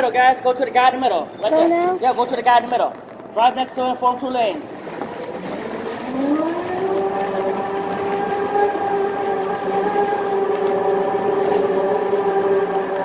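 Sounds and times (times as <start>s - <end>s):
go-kart motors whining: 4.9s - 13.0s.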